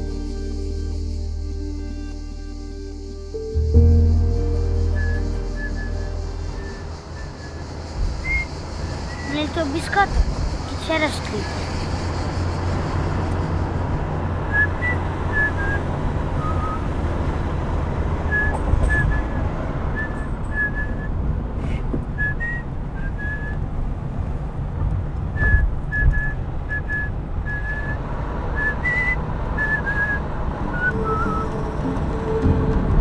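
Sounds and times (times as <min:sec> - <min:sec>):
car driving rumble: 0:02.8 - 0:33.0
person whistling a tune: 0:04.0 - 0:09.4, 0:14.5 - 0:15.8, 0:16.4 - 0:16.9, 0:18.3 - 0:19.4, 0:20.0 - 0:21.1, 0:22.2 - 0:23.6, 0:25.4 - 0:28.0, 0:28.6 - 0:31.8.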